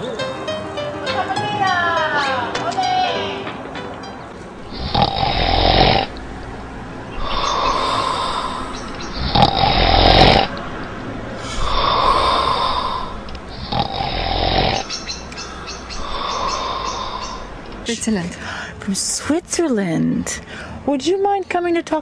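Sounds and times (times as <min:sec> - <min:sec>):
rasping snore-like breathing: 0:04.6 - 0:17.6.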